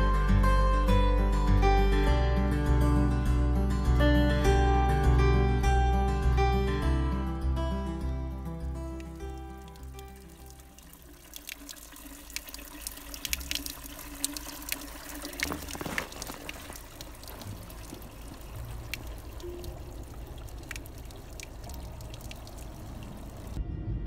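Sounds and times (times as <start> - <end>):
water trickling: 8.7 - 23.6
water drips and splashes: 8.9 - 23.6.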